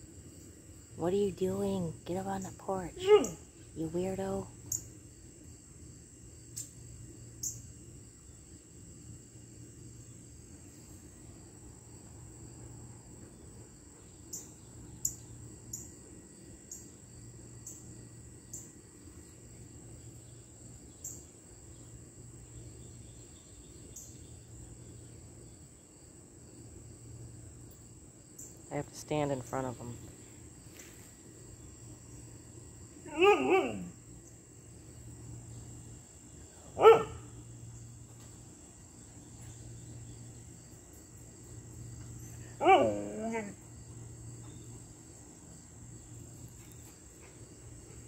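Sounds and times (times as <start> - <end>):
crickets chirping: 0.0 - 48.0.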